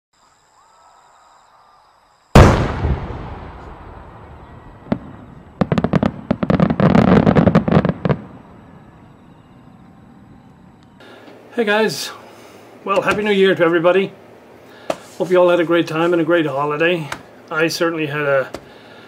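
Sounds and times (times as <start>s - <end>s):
crackling firework bangs: 2.3s - 8.6s
firework bang with rumble: 2.4s - 8.3s.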